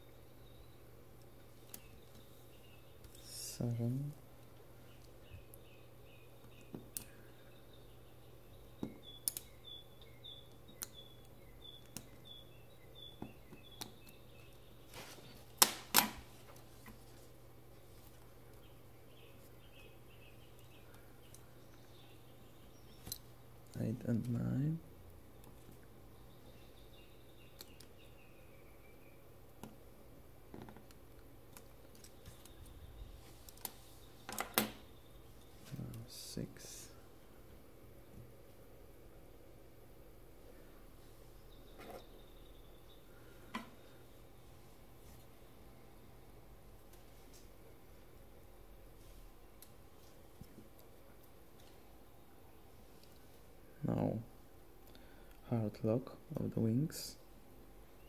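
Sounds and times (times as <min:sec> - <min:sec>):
sharp snaps: 0:09.2 - 0:09.6
faint high chirp: 0:41.4 - 0:44.1.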